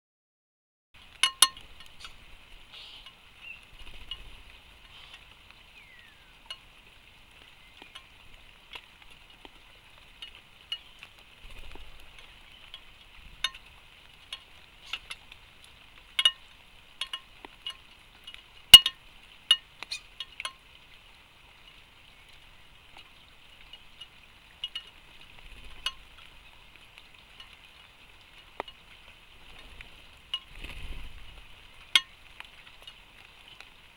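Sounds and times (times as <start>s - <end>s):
faint high hiss: 1.0s - 9.4s
birds pecking on wooden feeder: 1.0s - 33.7s.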